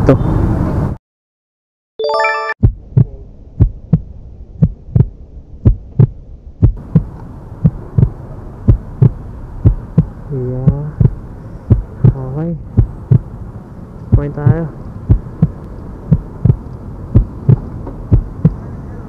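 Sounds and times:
short bright chime: 0:02.0 - 0:02.6
heartbeat thumps: 0:02.6 - 0:13.3, 0:14.1 - 0:18.6
low hum: 0:02.6 - 0:19.0.

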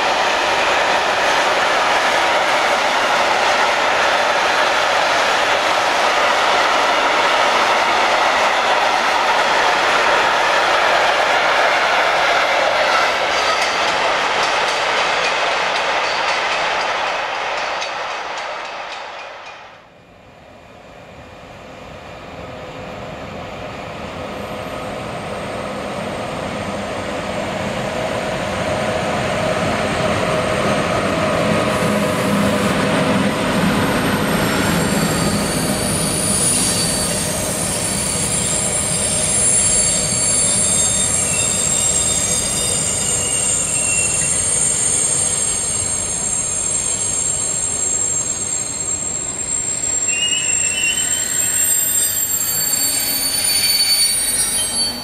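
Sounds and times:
train rolling past: 0:00.0 - 0:55.0
wheels squealing on rails: 0:29.6 - 0:55.0.

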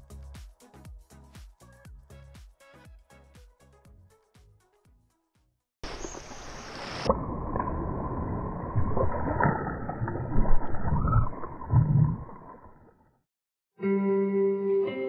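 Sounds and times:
fish splashing in water: 0:05.8 - 0:12.9
water sloshing: 0:05.8 - 0:13.0.

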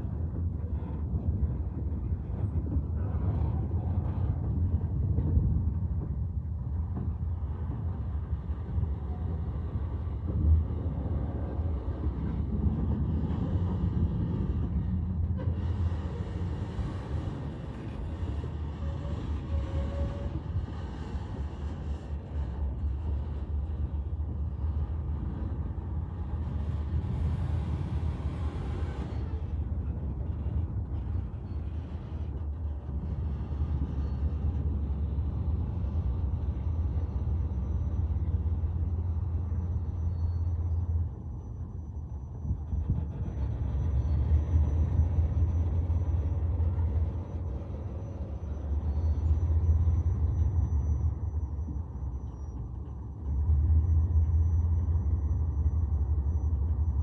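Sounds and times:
freight train rumbling past: 0:00.0 - 0:41.1.

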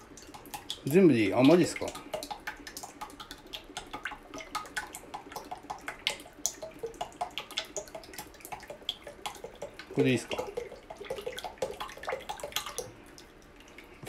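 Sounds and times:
oil pouring into a metal pot: 0:00.0 - 0:13.9.

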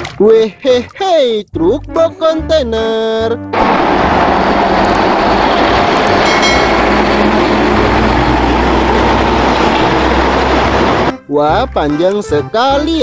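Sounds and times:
truck driving past: 0:03.5 - 0:11.1
brief high squeal: 0:06.1 - 0:07.0.

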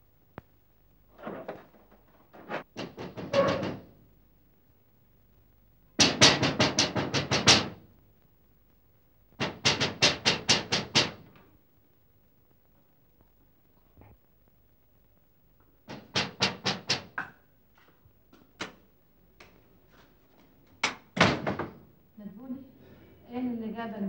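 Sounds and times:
pounding on a door: 0:02.8 - 0:04.0, 0:06.0 - 0:07.8, 0:09.4 - 0:11.3, 0:15.9 - 0:17.4, 0:20.8 - 0:21.8.

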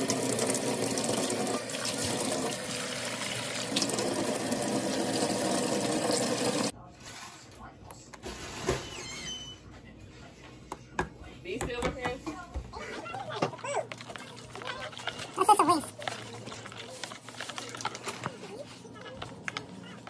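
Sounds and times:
faucet water splashing into sink: 0:00.0 - 0:06.7
water filling plastic container: 0:00.0 - 0:06.7.

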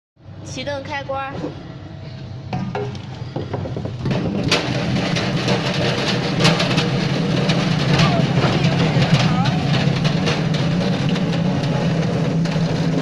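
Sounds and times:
peeling machine low hum: 0:01.5 - 0:13.0
sharp knocks: 0:02.5 - 0:13.0
potatoes rattling in drum: 0:03.4 - 0:13.0.

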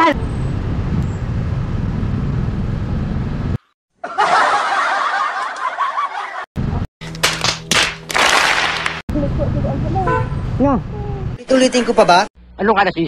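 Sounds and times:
low vehicle rumble: 0:00.0 - 0:03.6, 0:09.1 - 0:11.4.

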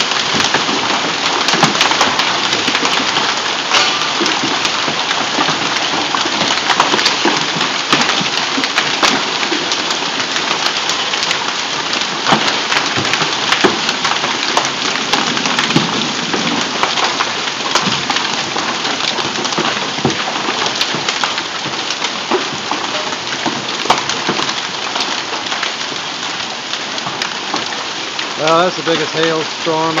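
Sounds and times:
hailstones clicking and knocking: 0:00.0 - 0:30.0
heavy rain hissing: 0:27.9 - 0:30.0.

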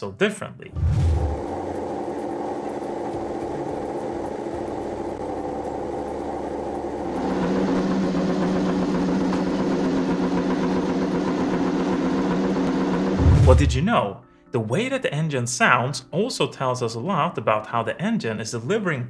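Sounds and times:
deeper motorcycle engine: 0:00.8 - 0:13.9
motorcycle engine running steadily: 0:01.6 - 0:13.7.

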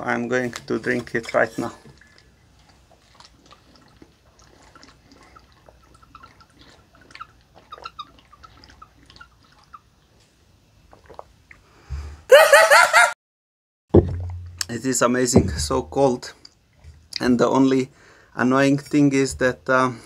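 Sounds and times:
water squeaking and gurgling: 0:00.8 - 0:10.2
person exclaiming: 0:12.3 - 0:13.2.

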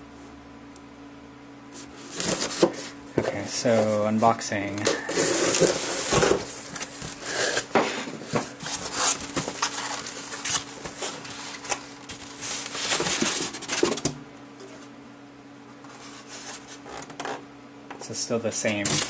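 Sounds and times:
faint steady hum: 0:00.0 - 0:19.0
cardboard flaps scraping: 0:01.8 - 0:14.1.

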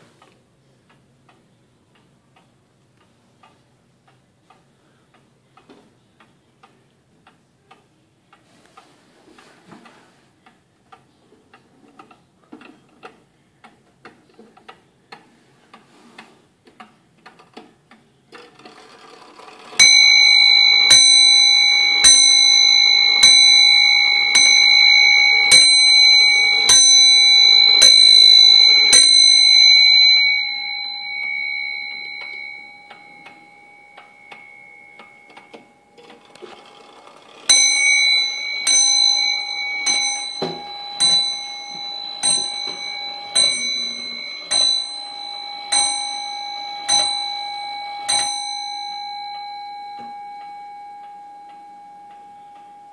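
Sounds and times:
faint clock ticking: 0:00.0 - 0:52.9
clock striking on bell: 0:19.8 - 0:52.9.

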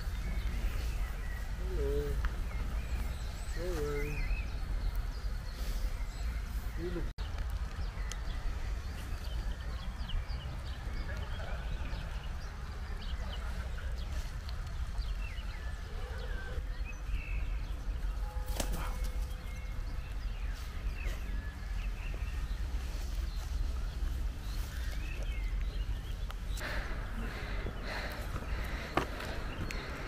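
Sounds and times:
small songbirds chirping: 0:00.0 - 0:30.0
steady low rumble: 0:18.8 - 0:30.0.

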